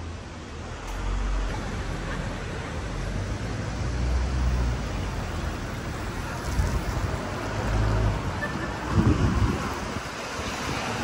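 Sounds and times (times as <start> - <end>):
wind buffeting microphone: 6.2 - 11.0.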